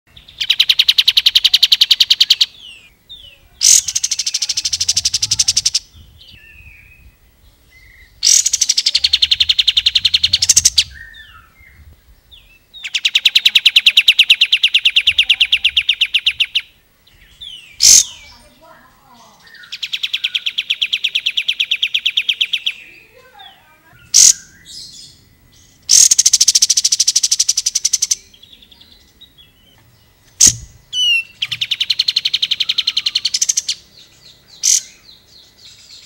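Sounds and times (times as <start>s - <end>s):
bird rapid drilling trill: 0.2s - 2.9s, 3.6s - 6.3s, 8.1s - 11.5s, 12.7s - 16.8s, 17.4s - 25.2s, 25.8s - 28.3s, 30.3s - 35.0s.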